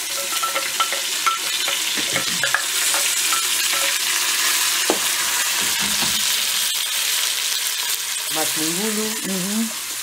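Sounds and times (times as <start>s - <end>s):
meat sizzling in hot oil: 0.0s - 10.0s
wooden spoon tapping and scraping: 0.2s - 4.0s.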